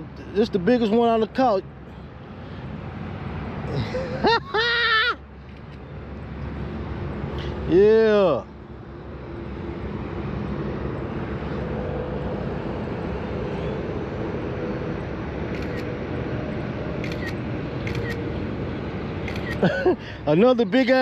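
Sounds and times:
outdoor background rumble: 0.0 - 21.0
phone camera shutter clicks: 17.0 - 18.2, 19.2 - 19.7.

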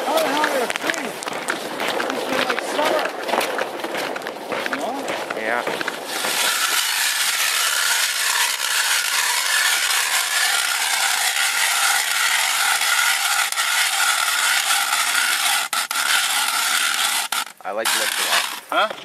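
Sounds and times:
ice auger scraping through ice: 5.9 - 19.0.

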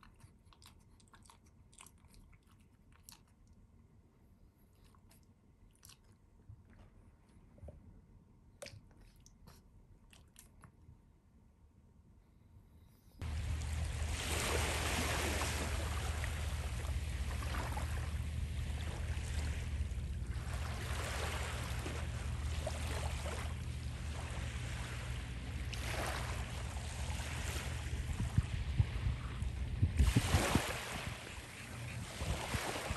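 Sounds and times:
small waves washing on beach: 13.2 - 32.9
wind rumble on microphone: 13.2 - 32.9.

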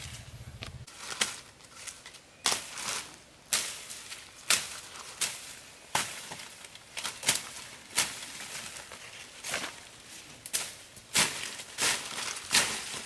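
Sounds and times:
leaves rustling: 0.0 - 13.0
blade slashing through grass: 10.5 - 13.0.

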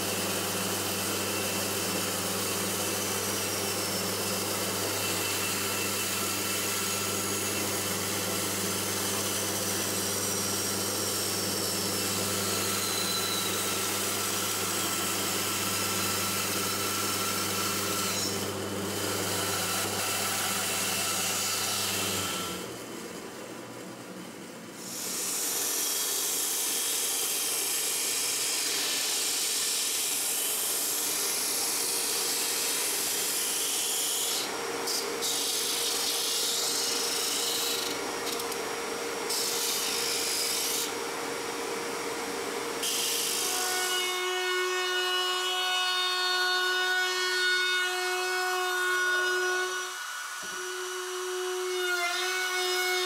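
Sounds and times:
router whining: 49.2 - 53.0.

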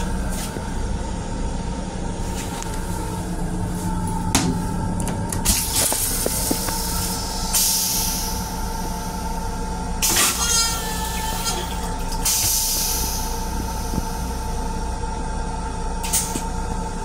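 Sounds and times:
railcar hum: 0.0 - 17.0
toilet flushing: 10.0 - 14.0.

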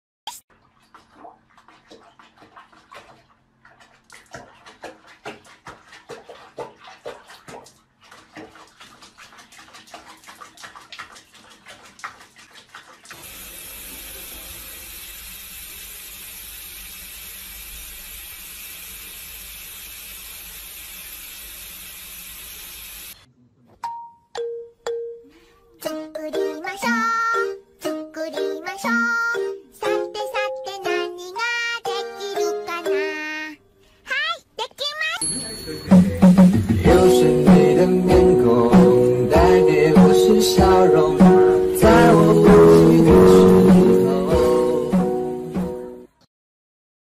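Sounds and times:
water splashing and dripping: 0.3 - 23.2
water running in steady spray: 0.5 - 23.2.

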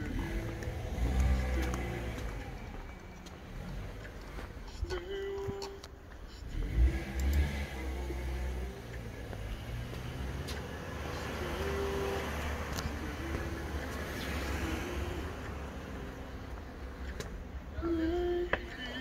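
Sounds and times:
car driving past: 0.0 - 4.5, 6.5 - 17.2.

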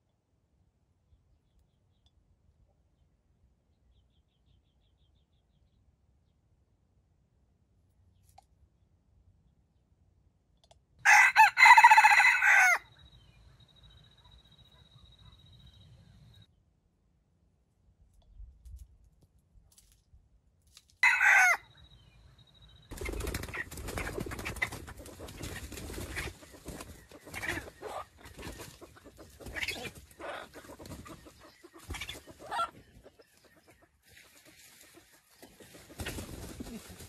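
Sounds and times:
rooster crowing: 11.0 - 12.9, 21.0 - 21.7.

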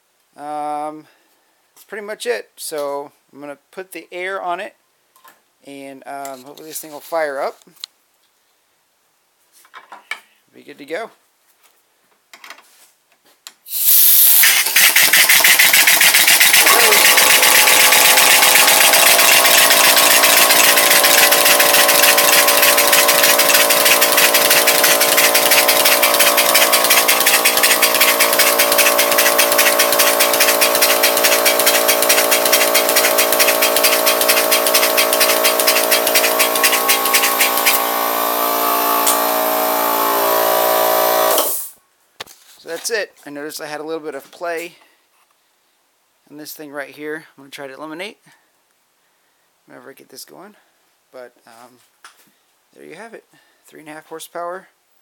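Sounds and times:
air-powered engine chuffing: 13.7 - 41.7
flywheel hum: 14.2 - 41.5.

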